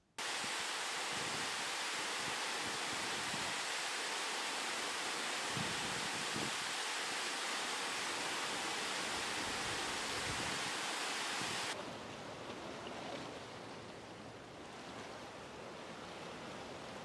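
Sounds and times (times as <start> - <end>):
waterfall rushing over rocks: 0.2 - 11.8.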